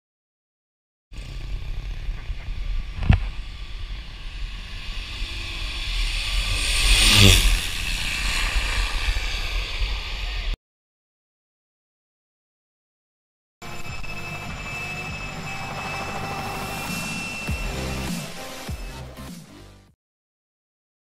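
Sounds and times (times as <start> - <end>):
turboprop plane flying past: 1.2 - 10.6.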